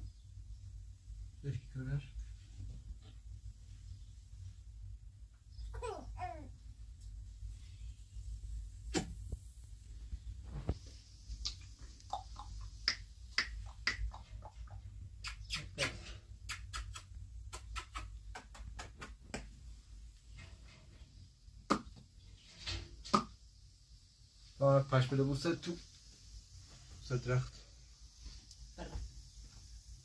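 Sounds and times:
sharp clicks and smacks: 0:08.9 - 0:09.2, 0:11.4 - 0:19.6, 0:21.7 - 0:22.0.

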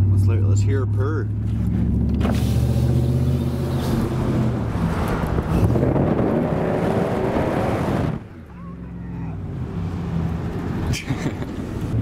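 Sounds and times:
truck engine accelerating: 0:00.0 - 0:12.0.

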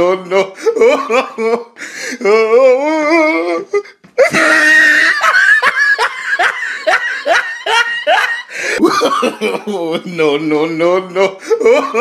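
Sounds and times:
high-pitched laughter: 0:04.2 - 0:09.9.

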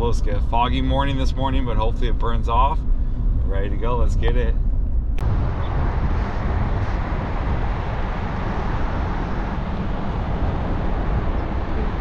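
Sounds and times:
truck driving on highway: 0:00.0 - 0:12.0.

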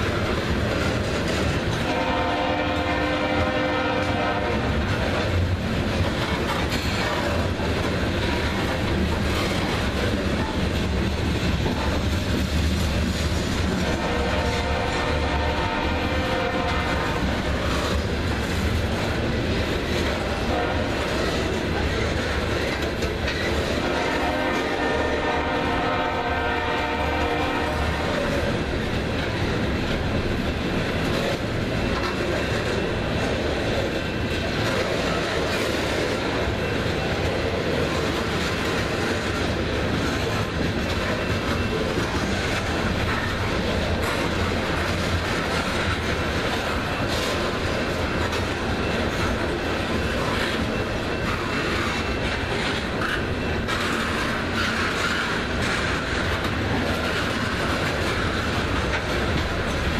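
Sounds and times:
train wheels on jointed rail: 0:00.0 - 0:59.9
train horn: 0:01.8 - 0:04.8, 0:13.8 - 0:17.4, 0:20.4 - 0:21.2, 0:23.8 - 0:28.4.

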